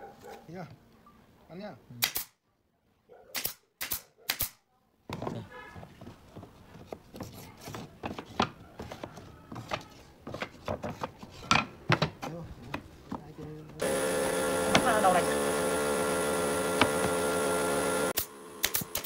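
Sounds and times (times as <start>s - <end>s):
nail gun firing: 2.0s - 2.4s, 3.3s - 4.6s, 14.6s - 19.0s.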